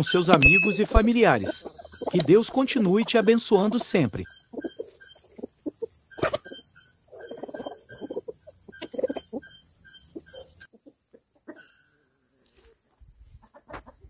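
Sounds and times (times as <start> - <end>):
hens clucking: 0.0 - 14.0
short high repeating note: 0.4 - 1.0.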